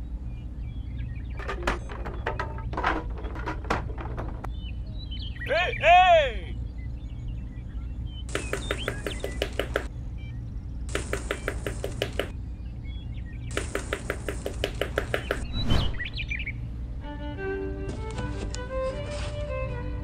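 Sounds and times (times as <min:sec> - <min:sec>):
steady low hum: 0:00.0 - 0:20.0
quick chirps: 0:08.2 - 0:09.9, 0:10.8 - 0:12.4, 0:13.5 - 0:16.2
rapid clicking: 0:08.3 - 0:09.9, 0:10.9 - 0:12.3, 0:13.5 - 0:15.4
brief whoosh: 0:15.4 - 0:16.3.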